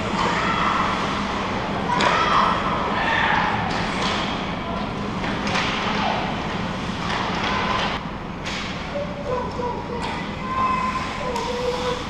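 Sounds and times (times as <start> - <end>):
distant shouts echoing in arena: 1.8 - 3.9, 8.9 - 12.0.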